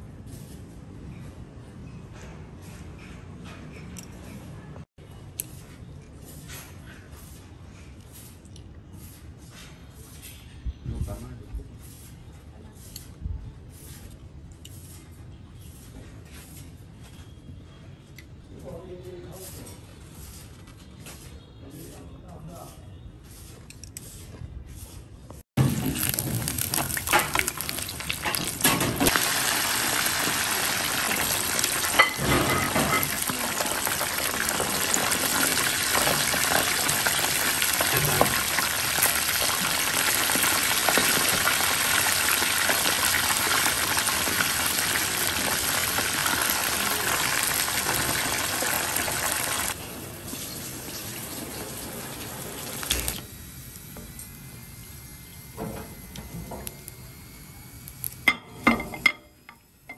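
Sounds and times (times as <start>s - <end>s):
food deep-frying in hot oil: 25.6s - 53.8s.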